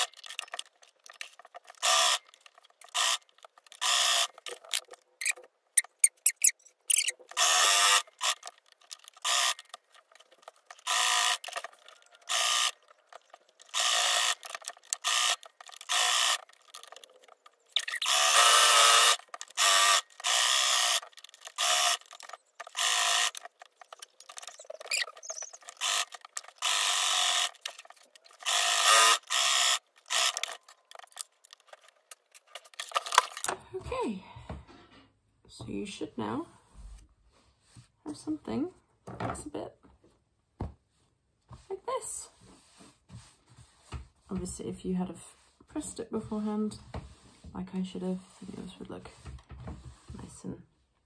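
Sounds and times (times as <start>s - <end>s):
electric sewing machine stitching: 7.3s - 9.8s, 10.7s - 12.9s, 13.6s - 17.1s, 17.8s - 30.6s.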